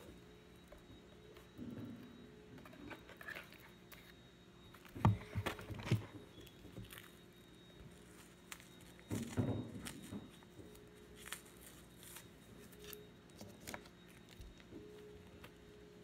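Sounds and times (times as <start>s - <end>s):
low steady hum: 0.0s - 16.0s
fabric and tape rustling: 7.9s - 15.5s.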